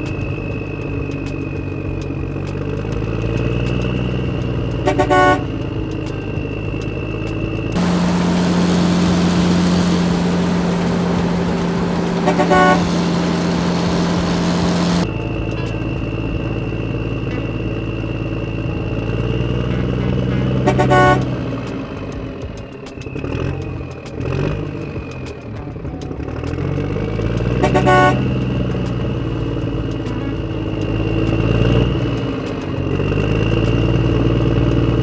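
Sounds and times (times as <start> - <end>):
high whine: 0.0 - 35.0
hissing engine with deep hum: 0.0 - 35.0
truck engine running: 0.0 - 35.0
horn toots: 4.6 - 6.4, 7.7 - 15.8, 19.6 - 21.7, 27.4 - 29.2, 29.9 - 31.1.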